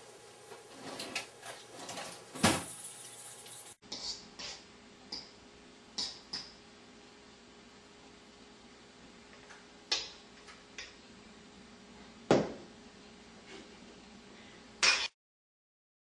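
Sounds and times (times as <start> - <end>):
faint room hum: 0.0 - 15.1
utensils clattering: 0.7 - 3.8.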